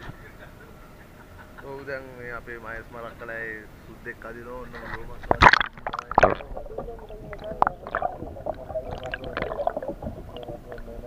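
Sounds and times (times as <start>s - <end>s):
faint steady hum: 0.0s - 11.0s
muffled underwater gurgling: 4.8s - 11.0s
rush of water: 5.3s - 11.0s.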